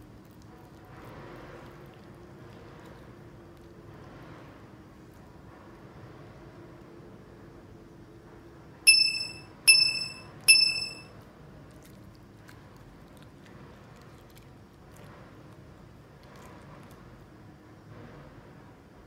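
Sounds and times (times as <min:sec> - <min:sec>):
bright chime dings: 0:08.9 - 0:11.1.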